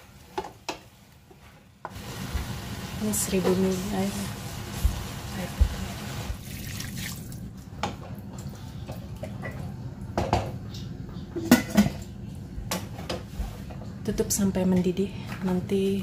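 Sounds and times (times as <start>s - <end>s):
water pouring: 6.1s - 7.5s.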